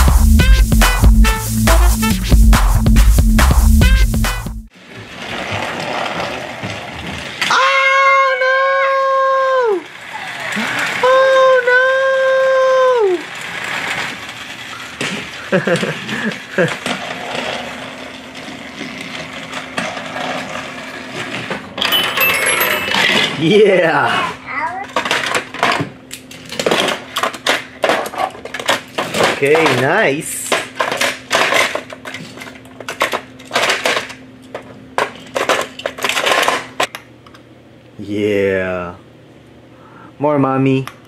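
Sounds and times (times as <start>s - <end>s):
toy wheels clattering on track: 12.8s - 23.4s
metal toys clattering in plastic case: 24.9s - 36.9s.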